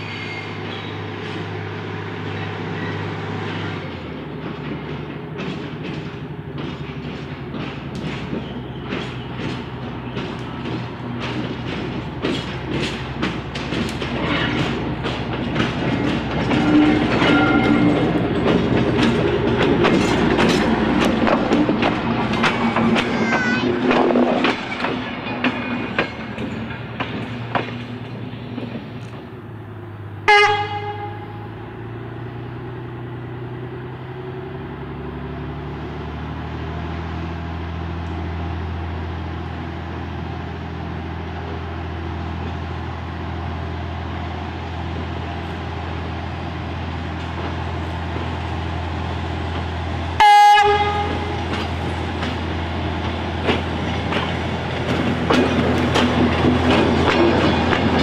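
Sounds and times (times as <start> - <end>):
rail motor engine droning: 0.0 - 58.0
train wheels clicking over rail joints: 0.0 - 58.0
train horn blast: 16.5 - 18.0, 30.2 - 31.6, 50.2 - 51.5.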